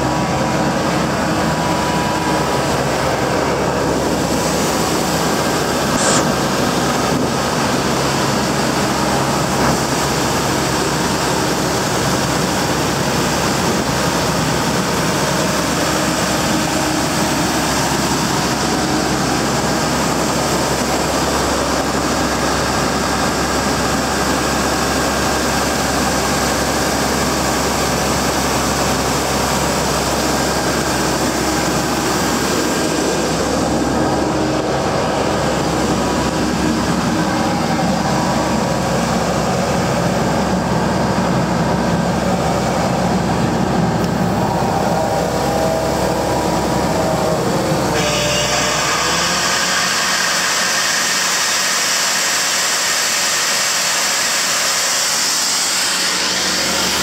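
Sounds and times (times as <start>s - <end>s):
diesel engine running loudly: 0.0s - 57.0s
even hiss of air: 1.2s - 12.4s.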